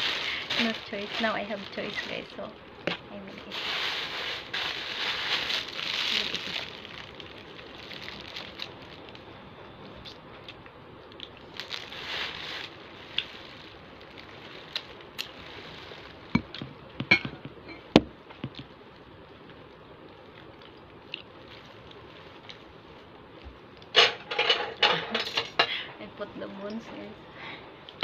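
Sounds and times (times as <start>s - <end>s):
paper food wrapper crinkling: 0.0s - 9.4s, 10.4s - 16.6s, 20.1s - 23.1s.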